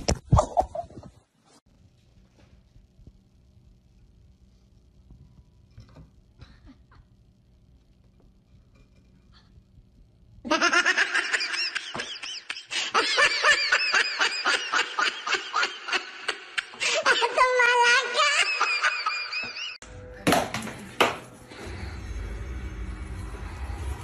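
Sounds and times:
person laughing hard: 10.5 - 19.8.

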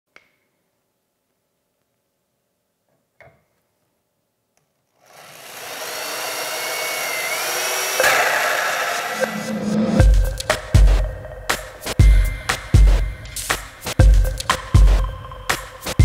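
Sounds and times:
power drill with hole saw: 5.0 - 9.4.

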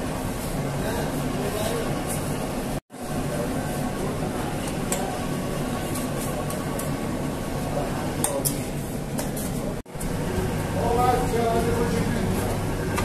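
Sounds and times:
dough mixer motor humming: 9.9 - 13.0.

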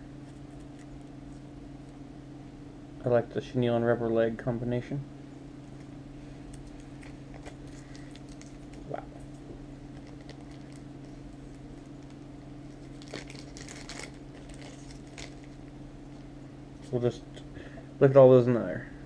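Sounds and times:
steady low hum: 0.0 - 19.0
plastic bags crinkling: 6.6 - 9.0, 9.8 - 16.9.

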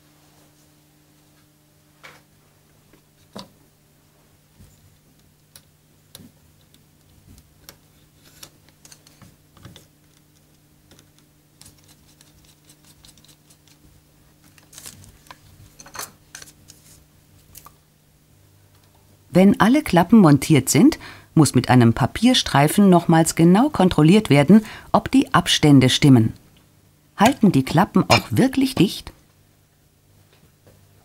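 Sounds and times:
steady low hum: 16.4 - 31.0.

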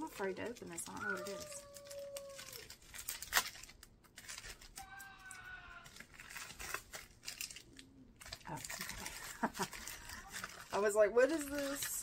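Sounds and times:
plastic packet crinkling: 0.0 - 12.0.

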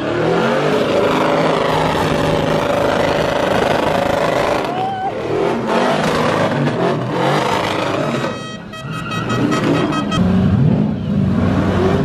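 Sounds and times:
tires spinning on wet pavement: 0.0 - 8.4
truck engine revving: 0.0 - 12.0.

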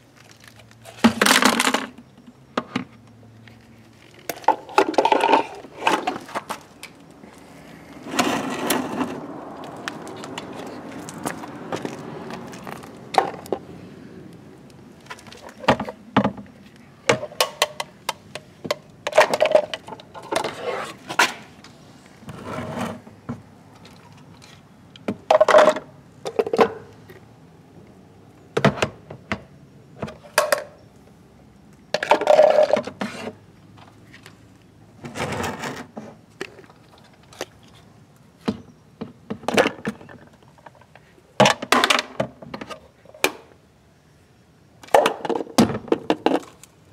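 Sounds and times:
plastic bins sliding on ground: 4.2 - 13.6, 19.2 - 21.6, 22.2 - 23.4, 35.0 - 36.2.

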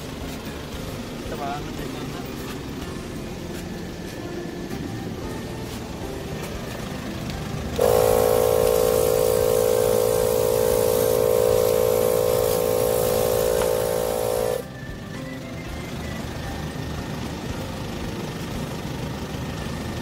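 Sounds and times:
air compressor humming: 0.0 - 15.1.

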